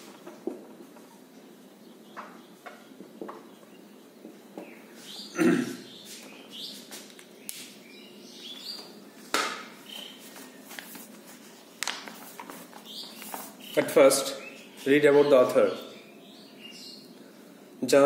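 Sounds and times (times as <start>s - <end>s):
high chirps and squeaks: 12.8s - 17.0s.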